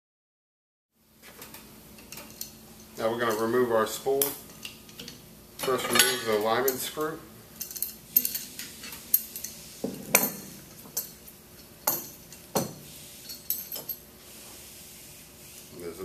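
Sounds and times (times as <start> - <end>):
metal tool clinks and taps: 7.6 - 14.0.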